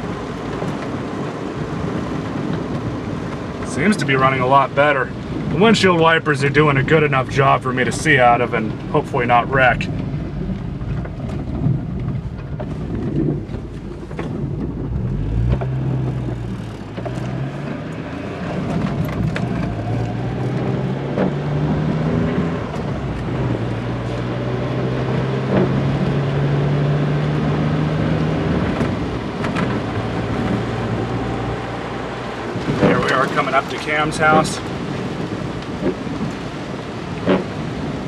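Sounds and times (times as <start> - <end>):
car engine running: 0.0 - 36.2
rain: 0.0 - 38.0.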